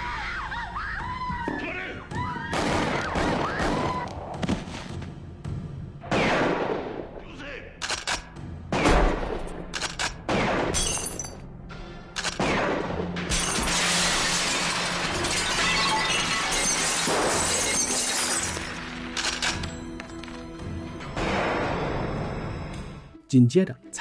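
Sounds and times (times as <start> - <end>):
background music: 0.0 - 24.0
shotgun blasts: 6.0 - 7.0, 10.2 - 10.8
glass window shattering: 13.3 - 19.5.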